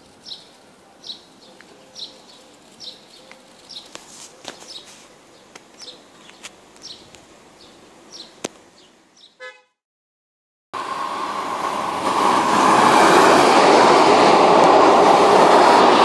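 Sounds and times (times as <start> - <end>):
bird chirping: 0.1 - 9.5.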